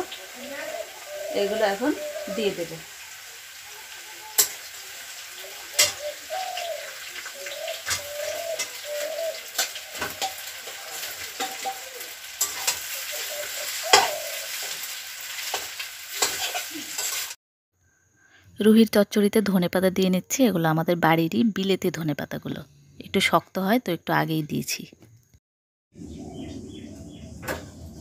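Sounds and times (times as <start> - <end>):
food sizzling in hot oil: 0.0 - 17.4.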